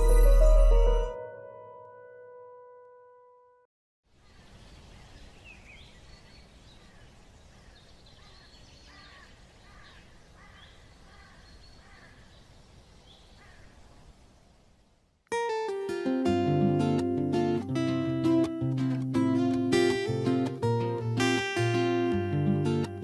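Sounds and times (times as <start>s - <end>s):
birds chirping: 4.2s - 14.8s
background hiss: 4.2s - 16.0s.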